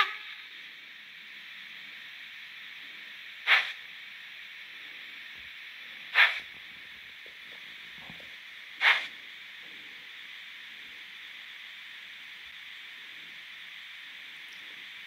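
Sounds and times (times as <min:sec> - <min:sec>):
loud steam chuffs: 0:00.0 - 0:06.6
steam hiss: 0:00.0 - 0:15.0.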